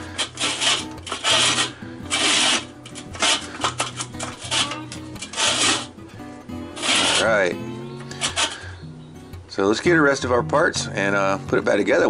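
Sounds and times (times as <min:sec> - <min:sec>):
metal blades scraping grill bowl: 0:00.0 - 0:08.8.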